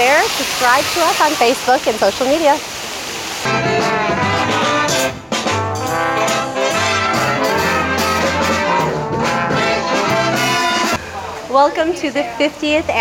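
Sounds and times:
live swing band playing: 3.4 - 11.0.

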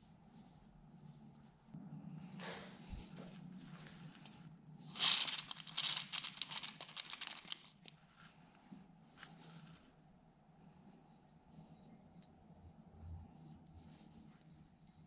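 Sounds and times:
handling noise: 5.0 - 7.9.

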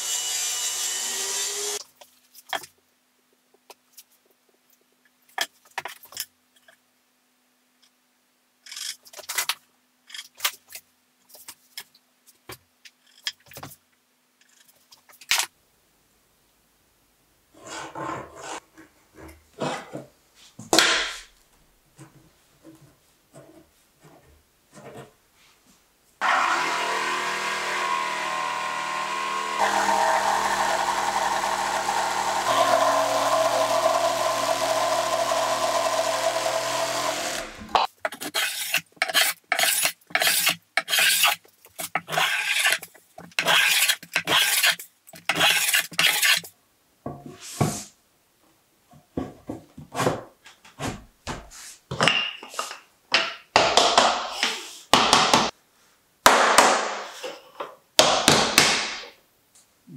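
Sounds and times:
electric power saw cutting wood: 0.0 - 1.8, 26.2 - 37.8
rough scraping strokes: 38.2 - 46.5.

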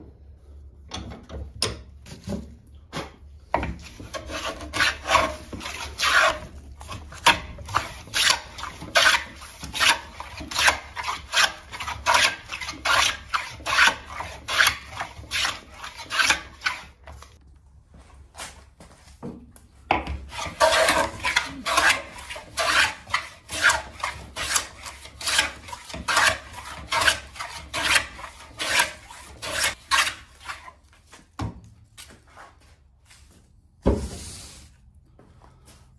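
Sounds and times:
hand plane rasping on wood: 3.7 - 17.0, 20.2 - 30.7.

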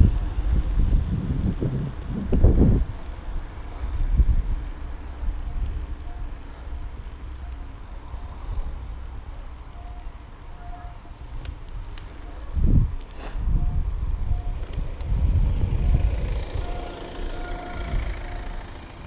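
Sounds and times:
wind buffeting microphone: 0.0 - 7.2, 11.2 - 19.0
bicycle bumps: 0.0 - 19.0
bicycle rolling on asphalt: 0.0 - 19.0.

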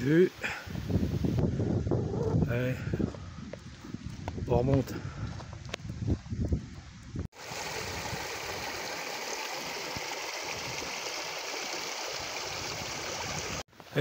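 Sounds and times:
brook rushing over rocks: 7.4 - 14.0.

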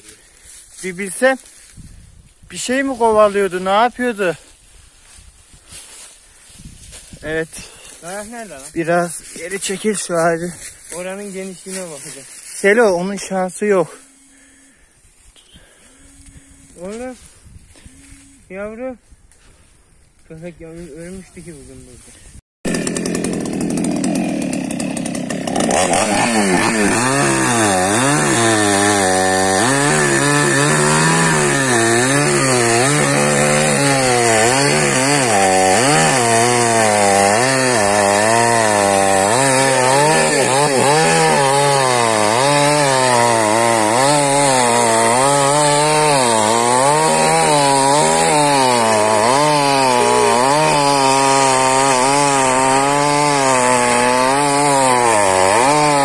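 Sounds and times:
chainsaw cutting wood: 22.7 - 56.0.

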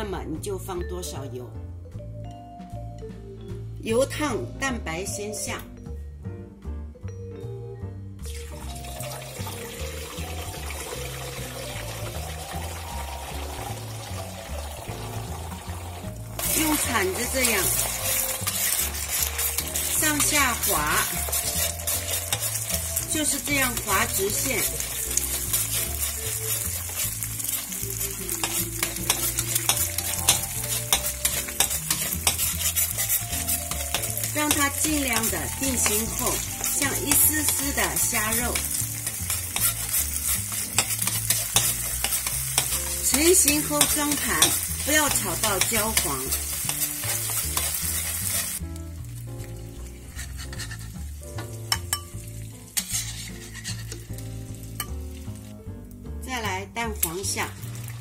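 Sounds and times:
soft background music: 0.0 - 58.0
egg whites sizzling in oil: 8.3 - 56.0, 56.9 - 58.0
metal spatula scraping wok: 16.3 - 48.6, 49.8 - 55.0.

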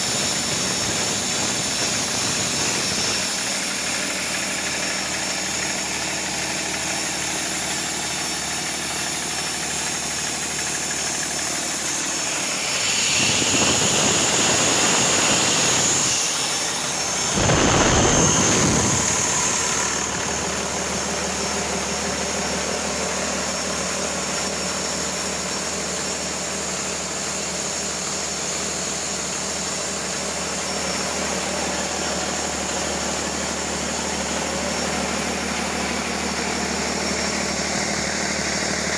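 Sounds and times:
diesel engine running: 0.0 - 38.9
high turbocharger whine: 0.0 - 38.9
rush of intake air: 11.9 - 20.4.

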